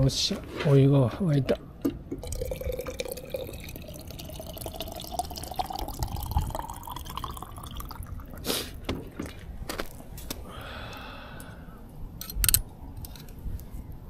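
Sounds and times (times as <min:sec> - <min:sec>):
water pouring into a cup: 0:02.2 - 0:09.5.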